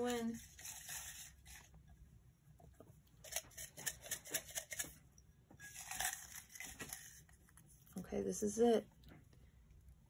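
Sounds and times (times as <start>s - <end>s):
paper slips rattling in glass jar: 5.6s - 7.2s.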